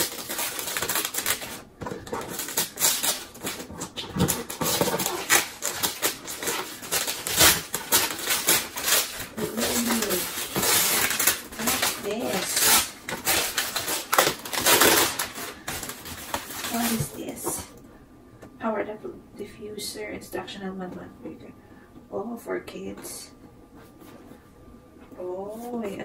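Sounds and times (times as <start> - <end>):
wrapping paper crinkling and tearing: 0.0 - 17.6.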